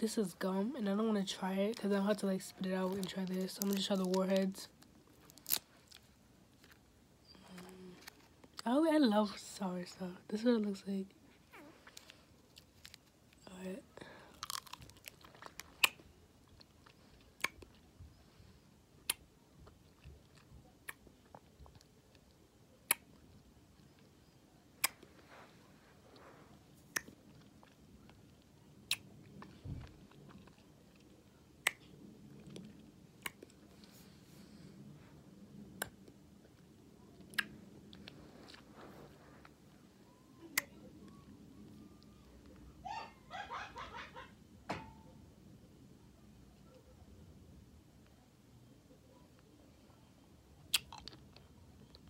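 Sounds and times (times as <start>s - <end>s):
faint chewing: 1.7s - 8.7s, 11.3s - 13.4s, 14.0s - 42.7s, 50.6s - 52.0s
wet mouth clicks and smacks: 37.3s - 37.6s.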